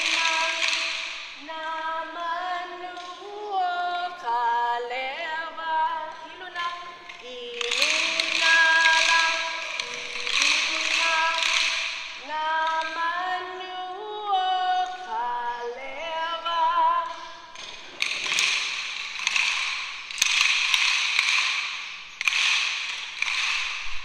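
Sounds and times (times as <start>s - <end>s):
people singing: 0.0s - 17.6s
wooden sticks clattering: 0.0s - 24.0s.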